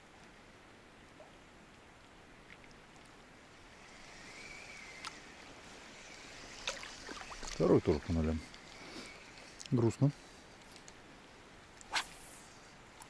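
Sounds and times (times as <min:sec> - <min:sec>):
river water rushing: 0:03.2 - 0:12.1.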